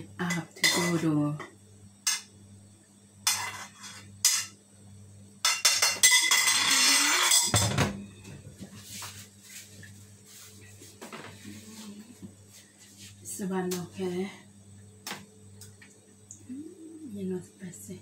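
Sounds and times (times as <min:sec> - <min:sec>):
wok scraping: 0:03.3 - 0:04.5, 0:05.6 - 0:07.6.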